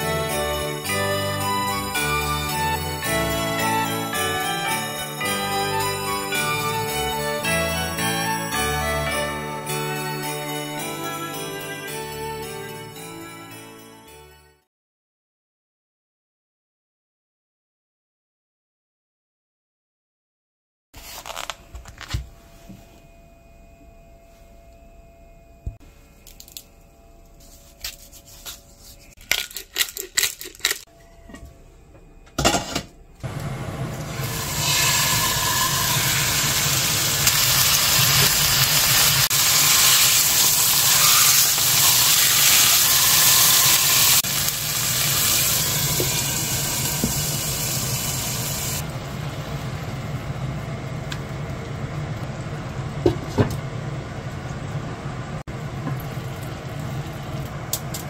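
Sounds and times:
steady low hum: 21.6 - 29.2, 48.8 - 58.0
beef sizzling in a frying pan: 34.1 - 48.8.

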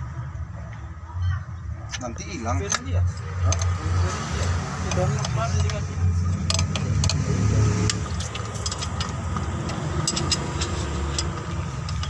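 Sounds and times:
diesel engine idling: 2.2 - 12.0
spanner clicking on a nut: 4.8 - 12.0.

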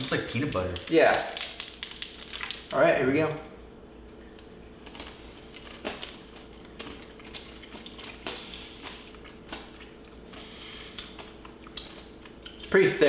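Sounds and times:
steady low hum: 0.0 - 13.0
small crunches: 4.4 - 12.7
chewing protein bar: 4.8 - 12.6.

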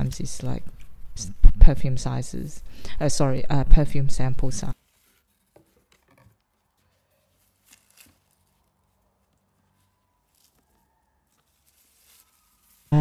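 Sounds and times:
cardboard box rustling: 4.7 - 13.0.

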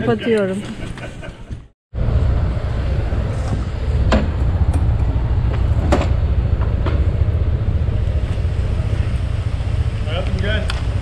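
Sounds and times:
wind on microphone: 2.0 - 10.0
motorcycle engine rumble: 2.0 - 11.0.

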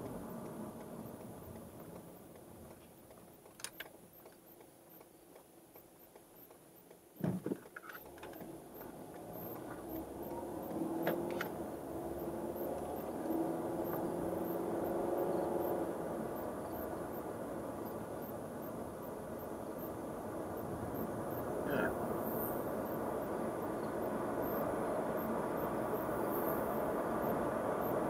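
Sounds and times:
car engine hum: 0.0 - 28.0
tyre noise on rough road: 7.2 - 16.6.

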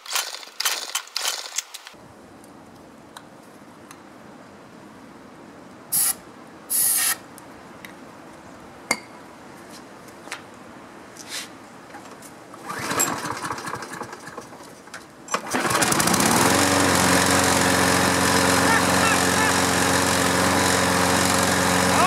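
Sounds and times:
lawn mower engine starting and running: 0.0 - 2.0, 12.5 - 22.0.

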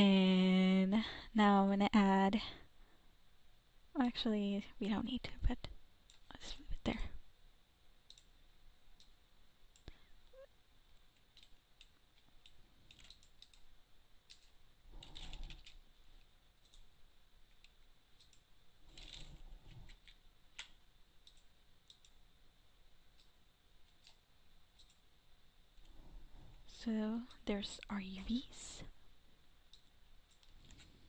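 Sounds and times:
computer mouse and keyboard clicks: 8.1 - 8.3, 11.2 - 15.8, 16.6 - 16.9, 17.5 - 22.2, 23.2 - 25.1, 29.7 - 31.0.

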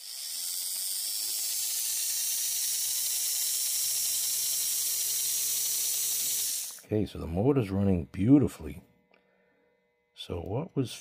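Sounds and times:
small electric motor running: 0.0 - 9.0.

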